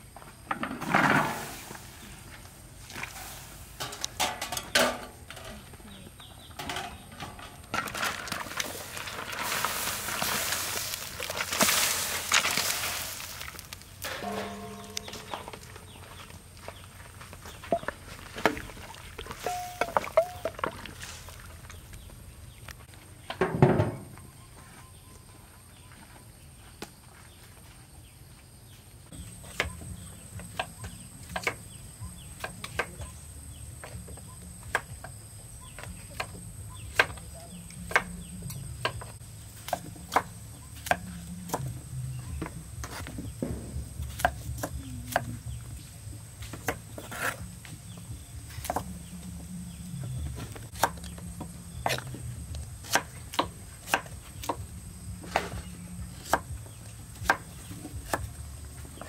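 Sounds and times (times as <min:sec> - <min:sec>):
metal lid clanking on wok: 0:14.0 - 0:15.6.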